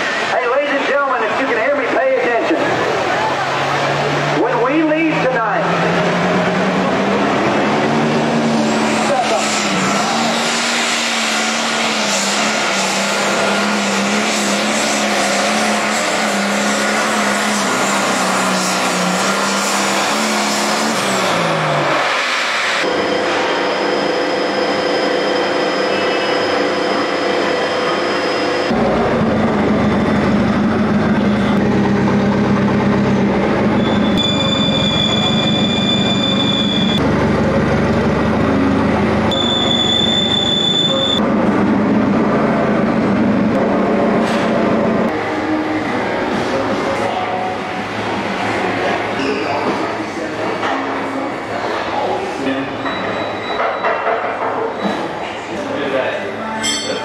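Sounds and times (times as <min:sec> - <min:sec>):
tractor engine running hard: 0:00.0 - 0:52.4
high whistle: 0:23.0 - 0:28.7, 0:33.8 - 0:37.0, 0:39.3 - 0:41.2.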